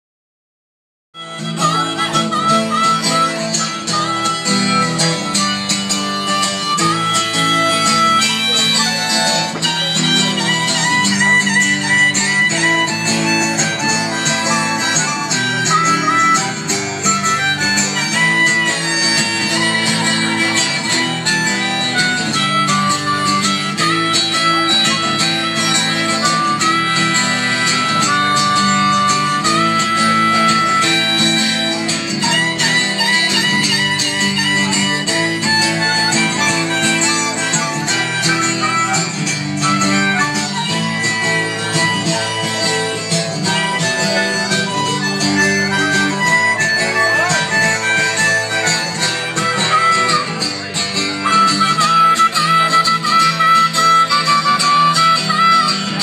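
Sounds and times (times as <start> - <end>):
amplified harmonica: 1.2 - 56.0
strummed guitar: 1.2 - 56.0.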